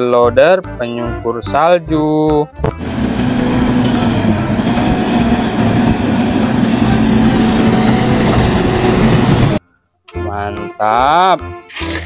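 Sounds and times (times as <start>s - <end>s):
wheel loader diesel engine: 2.7s - 9.6s
snow plow pushing through snow: 2.8s - 9.6s.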